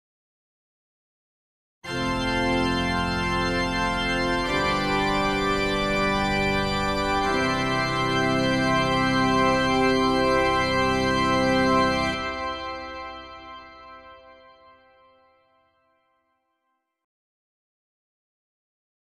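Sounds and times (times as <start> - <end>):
organ chords: 1.9 - 15.4.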